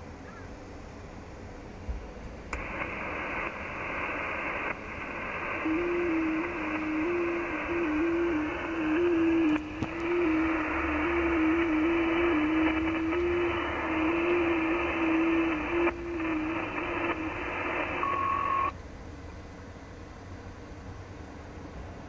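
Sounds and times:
radio band hiss: 0:02.5 - 0:18.8.

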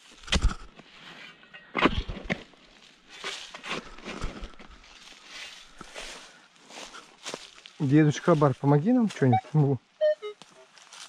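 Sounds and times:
shovel digging into soil: 0:00.0 - 0:02.5, 0:03.1 - 0:04.6.

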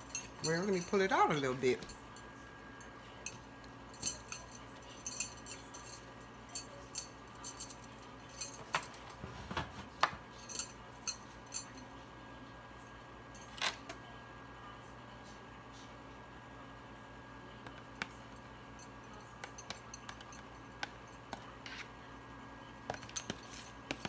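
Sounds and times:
utensils clinking on bowl and pan: 0:00.0 - 0:01.9.

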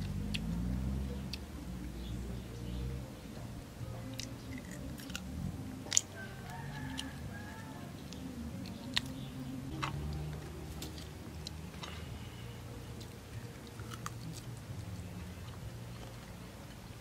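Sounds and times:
chewing: 0:00.0 - 0:01.9, 0:03.4 - 0:16.8
low steady hum: 0:00.0 - 0:17.0
chicken snapping and crackling: 0:04.0 - 0:12.0, 0:13.0 - 0:16.4.

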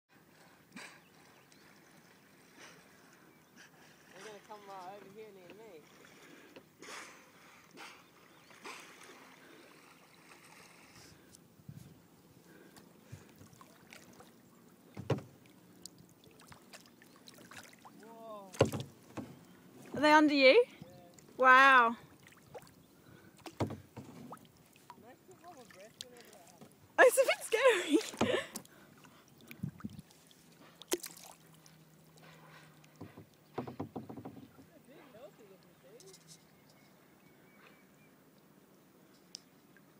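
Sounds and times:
water lapping and splashing: 0:00.1 - 0:36.0
soft knocks on a kayak: 0:14.9 - 0:15.4, 0:18.5 - 0:20.1, 0:23.4 - 0:24.4, 0:33.0 - 0:34.8.

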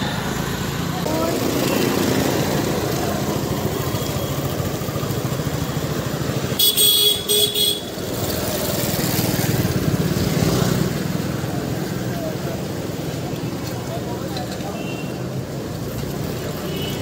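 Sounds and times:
motorcycle engines running: 0:00.0 - 0:17.0
street traffic: 0:00.0 - 0:17.0
vehicle horn honking: 0:06.6 - 0:07.9.

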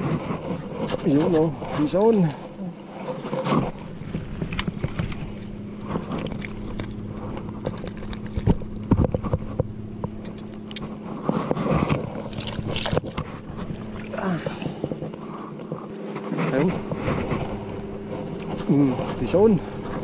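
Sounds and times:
low motor hum: 0:00.0 - 0:20.0
rustling in water plants: 0:00.0 - 0:20.0.

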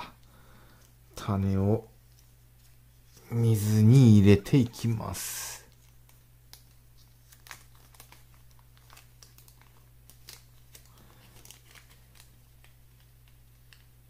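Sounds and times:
plastic bag crinkling: 0:05.7 - 0:13.9.

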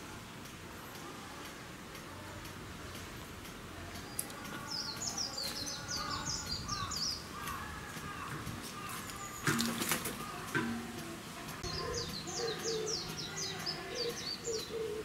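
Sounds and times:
outdoor background hiss: 0:00.0 - 0:15.0
bird chirping: 0:04.0 - 0:15.0.

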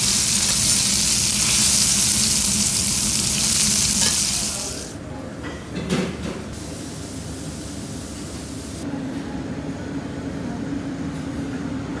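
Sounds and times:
steak sizzling on griddle: 0:00.0 - 0:04.9.

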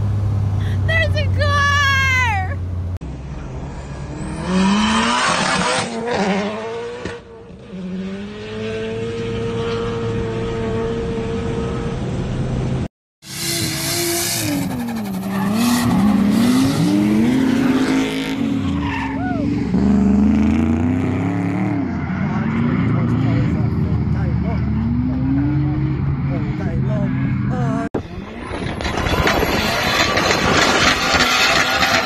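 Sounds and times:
car engine accelerating: 0:02.6 - 0:32.0
car engine revving: 0:02.7 - 0:32.0
tyre squeal: 0:13.3 - 0:16.8, 0:18.4 - 0:19.6.

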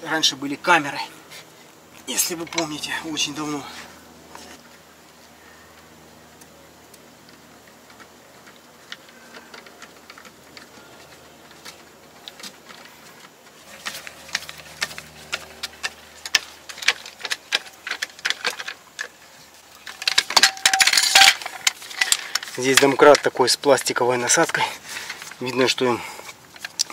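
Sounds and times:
metallic clatter: 0:19.8 - 0:23.4.

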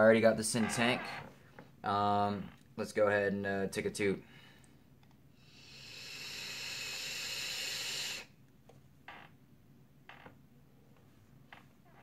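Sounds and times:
breathy exhale puffs: 0:05.4 - 0:08.4
vape coil sizzling hiss: 0:05.5 - 0:08.3.

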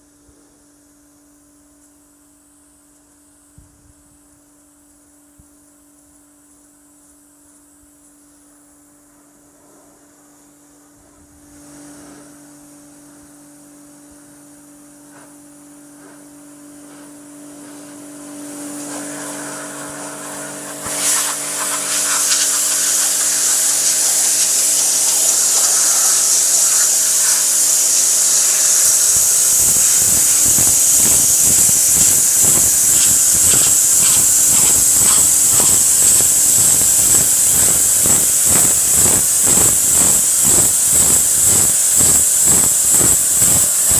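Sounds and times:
faint steady hum: 0:00.0 - 0:43.9
pressure washer water jet hissing: 0:17.6 - 0:43.9
water spattering: 0:20.8 - 0:43.9.

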